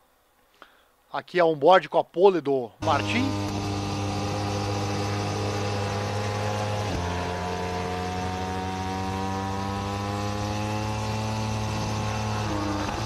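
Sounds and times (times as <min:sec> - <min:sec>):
motorcycle engine at high revs: 0:02.8 - 0:13.0.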